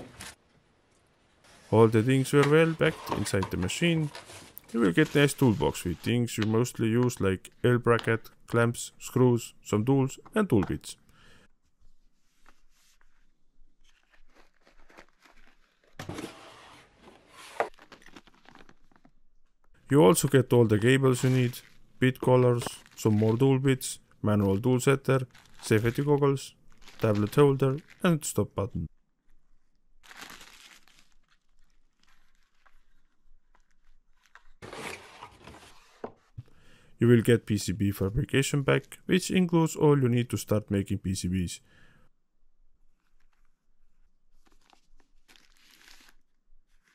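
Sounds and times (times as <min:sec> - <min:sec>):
plastic bags rustling: 0:01.4 - 0:07.2, 0:20.1 - 0:28.4, 0:30.0 - 0:33.1
sharp crackle: 0:17.7 - 0:19.2, 0:20.5 - 0:28.3, 0:29.3 - 0:34.6, 0:42.9 - 0:46.9.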